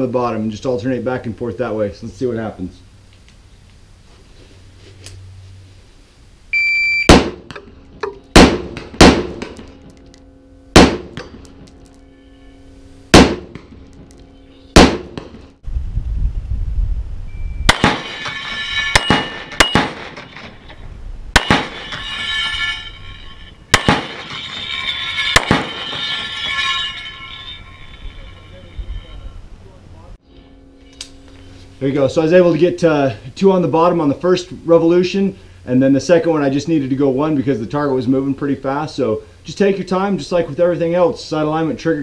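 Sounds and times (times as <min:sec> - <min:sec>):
rifle shots: 0:07.1 - 0:07.6, 0:08.3 - 0:09.7, 0:10.8 - 0:11.4, 0:13.1 - 0:13.8, 0:14.8 - 0:15.5, 0:17.7 - 0:20.5, 0:21.3 - 0:21.9, 0:23.7 - 0:26.0
steel target clanging and ringing: 0:17.6 - 0:34.2.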